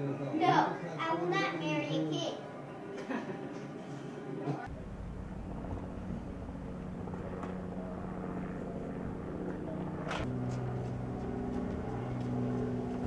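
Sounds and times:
vehicle engine humming: 4.7 - 13.0.

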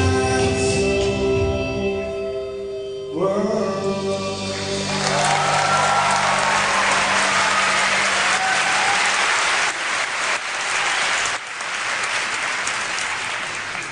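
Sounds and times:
audience applauding: 4.6 - 13.9.

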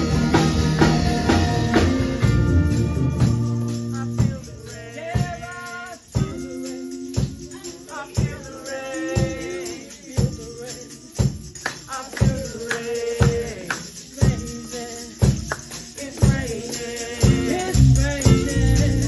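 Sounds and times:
electric guitars: 0.0 - 4.6
keyboard chords: 0.0 - 4.7
drum kit beat: 0.0 - 19.0.

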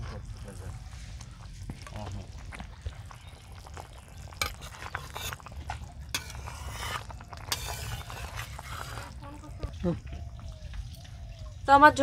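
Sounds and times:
curry simmering: 0.0 - 12.0
spatula scraping a metal pot: 4.4 - 9.6.

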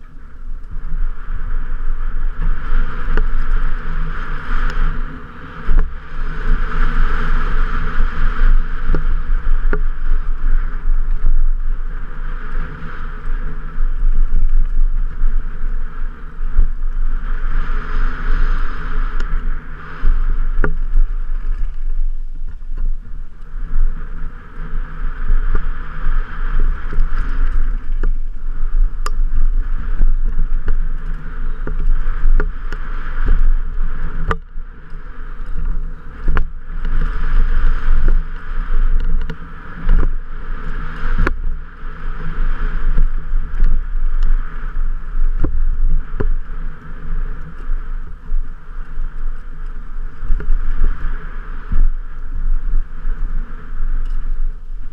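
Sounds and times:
wind buffeting microphone: 0.0 - 54.9
bike knocks and rattles: 2.4 - 4.0, 20.1 - 23.0, 25.4 - 40.2.

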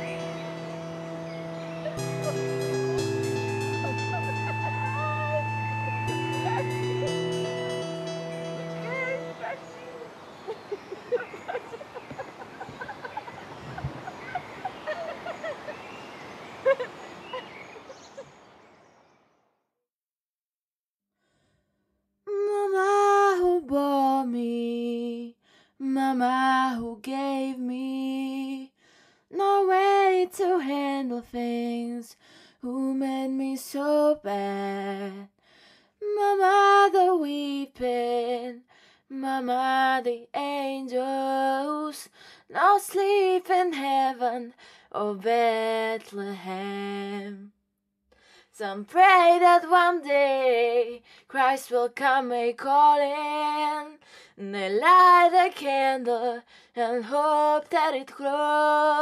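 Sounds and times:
woman singing unaccompanied: 0.0 - 12.8, 22.3 - 28.7, 29.3 - 35.3, 36.0 - 47.5, 48.6 - 59.0.

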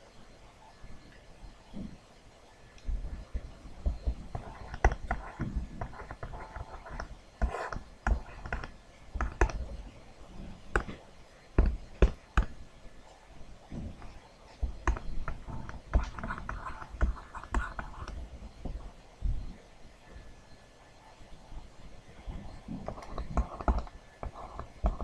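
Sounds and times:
stylus tapping on tablet screen: 3.3 - 9.7, 10.7 - 12.6, 13.9 - 18.8, 22.4 - 25.0.

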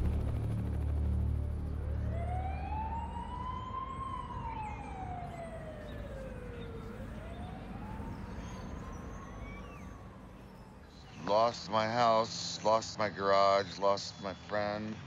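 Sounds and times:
low rumble: 0.0 - 3.4
siren wailing: 0.0 - 12.6.

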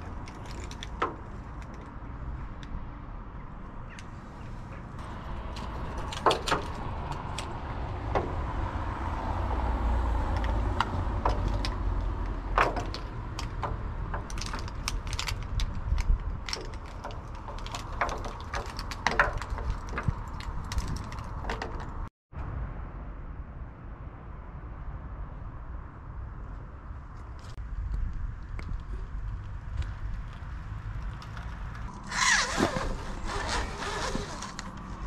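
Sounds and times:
wind rumbling on microphone: 0.0 - 35.0
knocks and clinks on metal lattice: 10.4 - 22.0.

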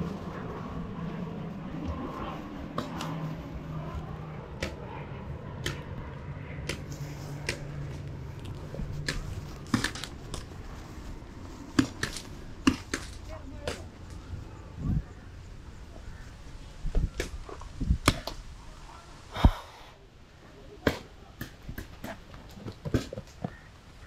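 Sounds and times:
steady low hum: 0.0 - 20.7
paintball markers firing: 9.0 - 10.5.

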